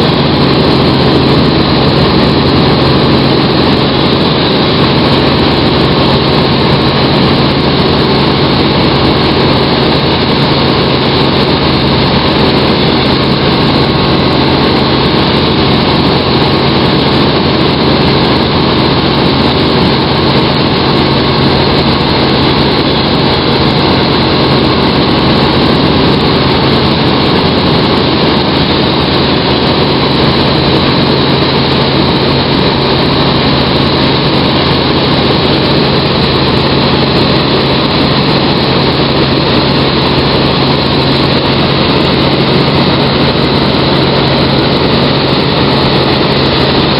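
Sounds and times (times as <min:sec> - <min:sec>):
helicopter engine and rotors: 0:00.0 - 0:46.9.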